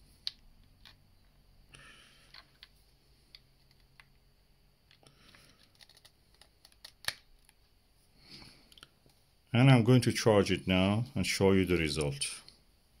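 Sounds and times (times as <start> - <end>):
faint plastic clicks and handling: 0.2 - 1.4, 2.2 - 4.2, 4.8 - 7.7.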